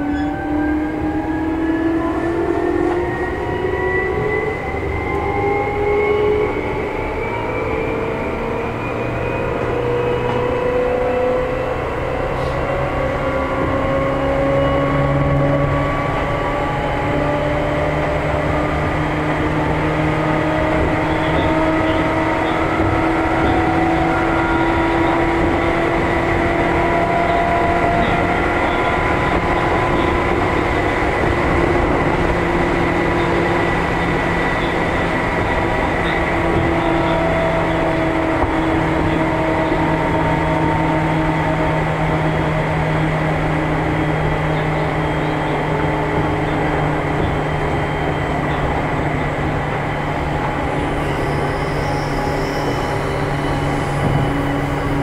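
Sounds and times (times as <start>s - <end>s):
train rolling noise: 0.0s - 55.0s.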